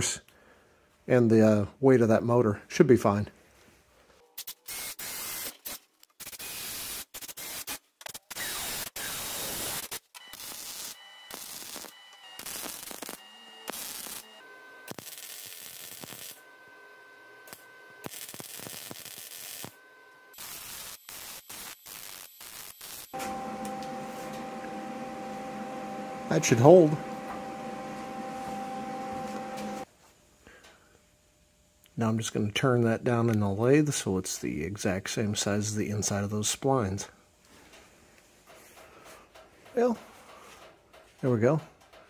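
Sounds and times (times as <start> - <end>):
welder crackling hiss: 8.4 - 14.3, 14.9 - 16.4, 17.5 - 19.8, 20.4 - 24.8.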